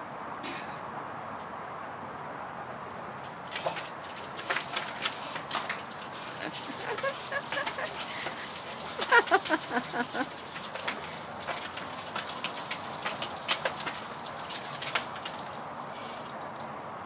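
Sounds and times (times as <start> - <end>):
water splashing: 3.0 - 16.8
ice cubes clattering: 3.2 - 15.4.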